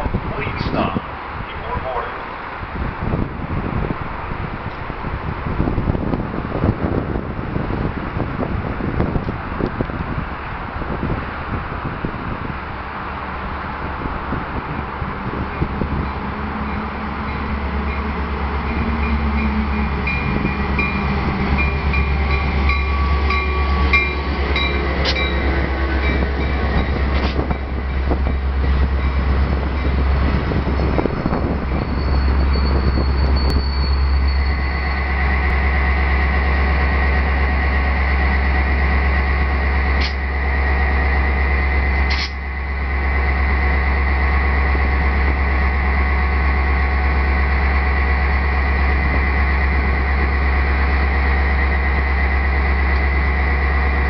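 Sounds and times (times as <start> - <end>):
diesel locomotive engine rumbling: 0.0 - 54.0
train wheels clattering: 16.7 - 34.9
high squeal: 31.4 - 35.2.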